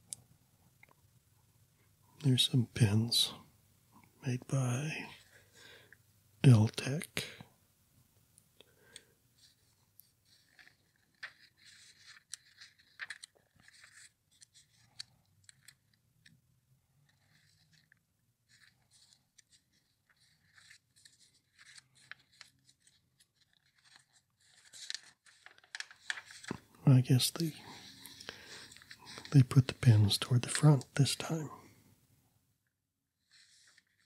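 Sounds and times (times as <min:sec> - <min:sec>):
catalog pages rustling: 0:09.4 - 0:16.3, 0:17.0 - 0:31.6, 0:33.2 - 0:34.0.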